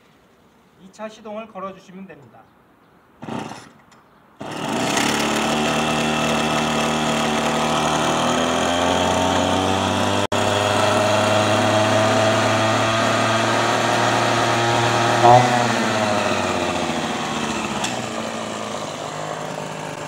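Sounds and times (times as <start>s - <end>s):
brush cutter engine idling: 4.4s - 20.0s
starter cord pull: 17.6s - 18.2s.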